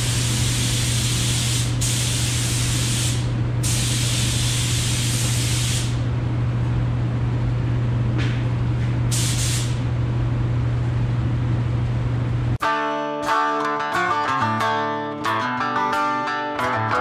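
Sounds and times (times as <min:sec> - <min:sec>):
spray gun hissing: 0:00.0 - 0:06.0, 0:09.1 - 0:09.8
steady low hum: 0:00.0 - 0:12.6
guitar music: 0:12.6 - 0:17.0.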